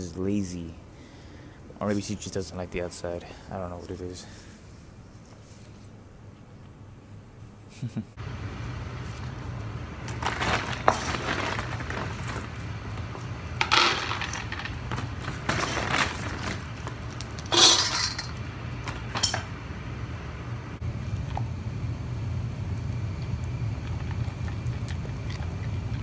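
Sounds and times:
steady low hum: 0:00.0 - 0:26.0
dry kibble rattling into bowls: 0:10.0 - 0:19.5.

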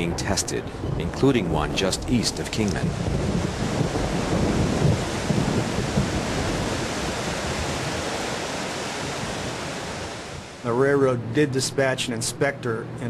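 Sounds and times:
low rumbling: 0:00.0 - 0:11.5
heavy rain hiss: 0:00.0 - 0:11.9.

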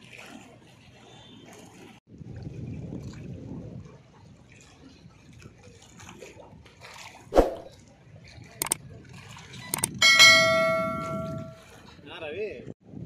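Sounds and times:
water lapping: 0:00.0 - 0:12.1
bell chime ringing: 0:10.0 - 0:11.6.

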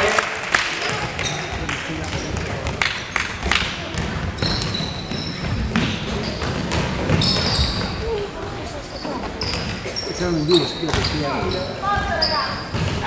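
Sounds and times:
voices of players and spectators: 0:00.0 - 0:13.0
basketball bouncing on court: 0:00.8 - 0:08.2, 0:10.9 - 0:13.0.

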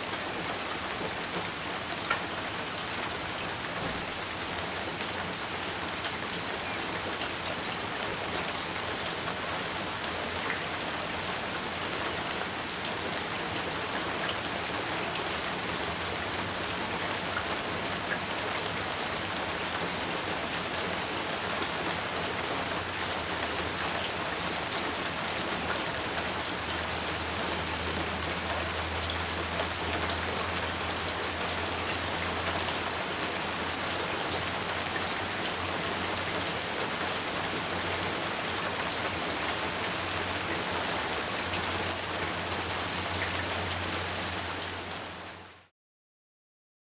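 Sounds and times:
steady rain falling: 0:00.0 - 0:45.7.

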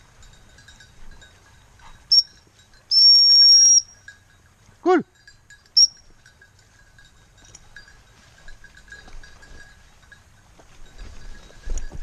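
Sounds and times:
small bell tinkling: 0:00.0 - 0:12.0
dog whistle pip: 0:02.1 - 0:02.3, 0:02.9 - 0:04.0.

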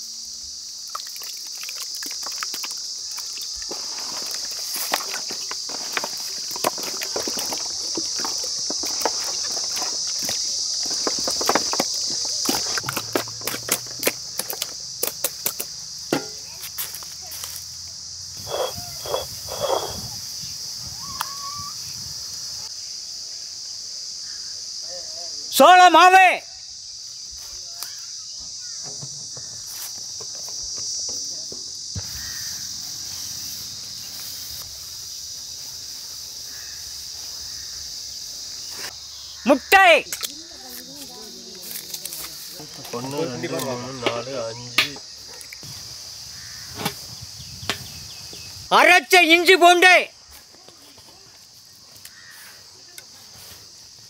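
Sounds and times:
high insect drone: 0:00.0 - 0:54.0
wet squelches of hands in marinade: 0:00.9 - 0:10.3.

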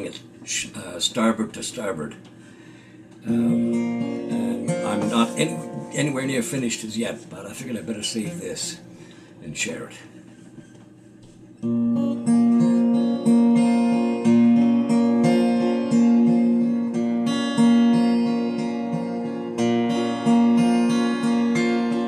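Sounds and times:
acoustic guitar strummed chords: 0:03.2 - 0:09.3, 0:11.6 - 0:22.0.

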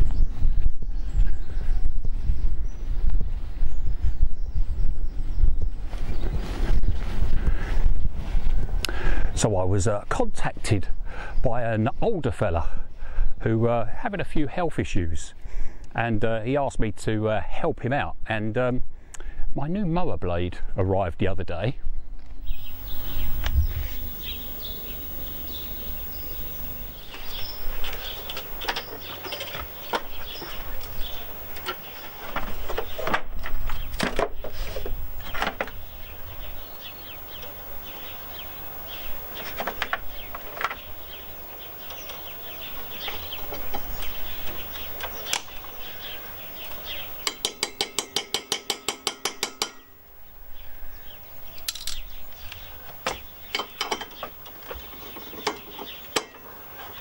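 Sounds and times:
tools clinking on metal: 0:47.2 - 0:49.9.

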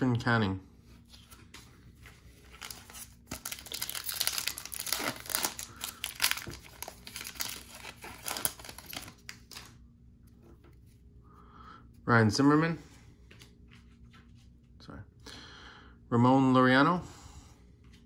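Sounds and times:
card pack wrapper crinkling and tearing: 0:02.3 - 0:09.8.

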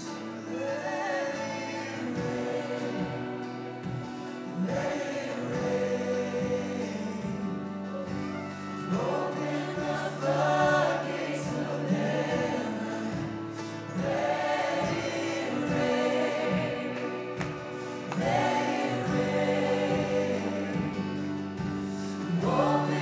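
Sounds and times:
group of voices singing: 0:00.0 - 0:23.0.

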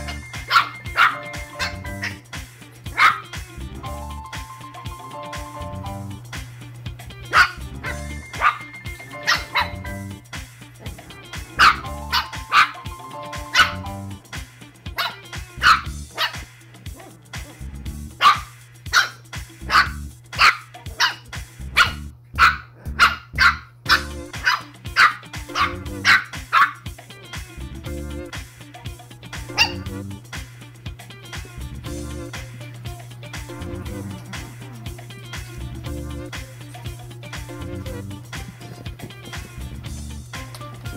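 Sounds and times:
puppies barking and yipping: 0:00.0 - 0:03.4, 0:07.3 - 0:10.1, 0:10.8 - 0:14.1, 0:14.8 - 0:17.6, 0:18.2 - 0:26.9, 0:29.5 - 0:30.0
background music: 0:00.0 - 0:21.9, 0:23.9 - 0:40.9.

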